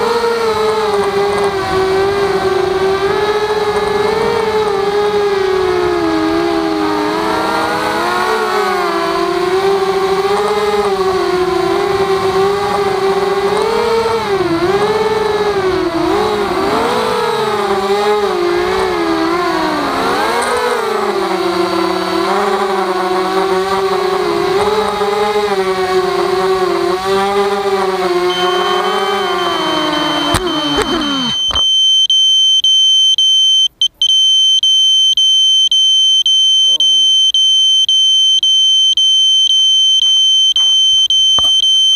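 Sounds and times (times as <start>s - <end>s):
drone motors whining: 0.0s - 32.2s, 36.2s - 41.9s
high electronic beep: 28.3s - 41.9s.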